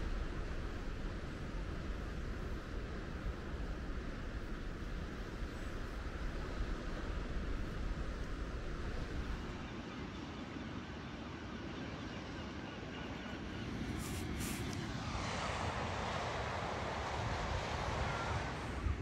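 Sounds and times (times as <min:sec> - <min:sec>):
wind rumbling on microphone: 0:00.0 - 0:09.7, 0:13.8 - 0:19.0.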